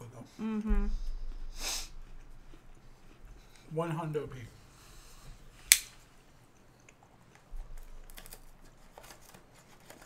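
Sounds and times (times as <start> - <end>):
sharp click: 5.7 - 6.0
snack packaging crinkling: 6.8 - 10.0.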